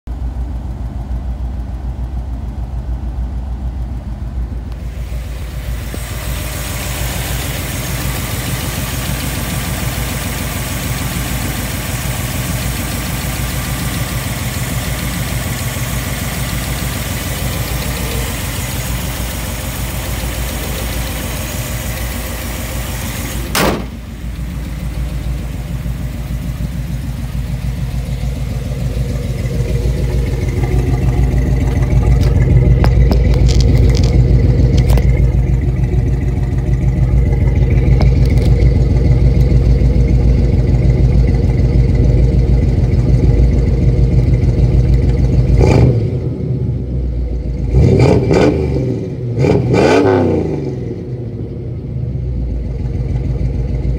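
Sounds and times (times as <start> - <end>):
engine idling: 0.0 - 53.9
sharp knock: 23.5 - 24.0.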